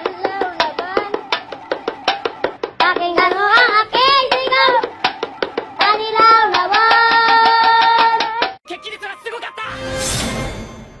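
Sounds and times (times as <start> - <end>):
fast beat of sharp taps: 0.0 - 8.6.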